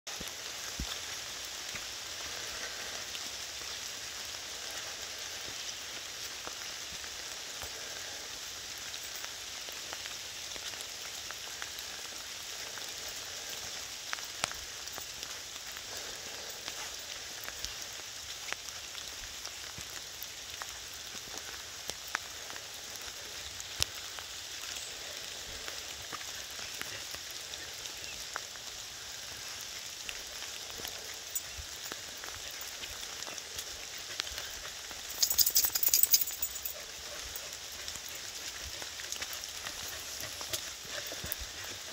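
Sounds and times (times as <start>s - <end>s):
rain falling on leaves: 0.1s - 41.9s.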